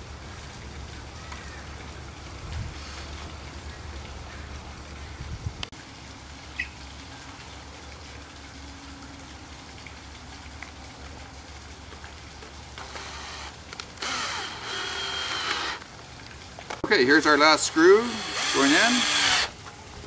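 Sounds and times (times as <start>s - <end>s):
cordless drill motor whine: 12.8s - 15.8s, 17.6s - 19.5s.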